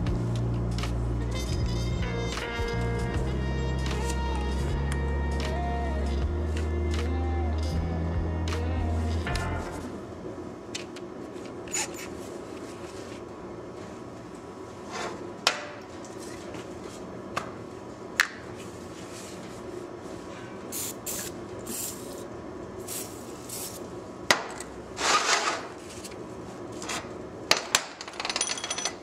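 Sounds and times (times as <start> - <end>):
aerosol spray hiss: 20.7 - 22.2
metal tools clinking: 28.0 - 29.0.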